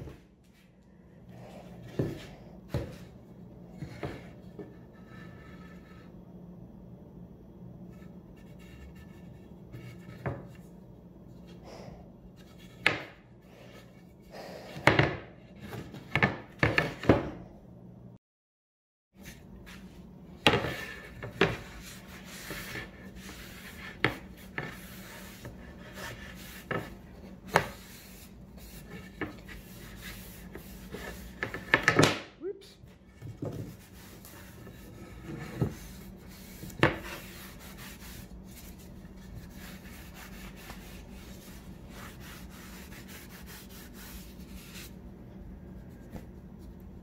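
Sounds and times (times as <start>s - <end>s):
wood knocking and scraping on wood: 1.8s - 3.2s, 8.5s - 10.6s, 12.4s - 13.8s, 20.4s - 27.9s, 28.6s - 32.2s, 33.0s - 38.7s.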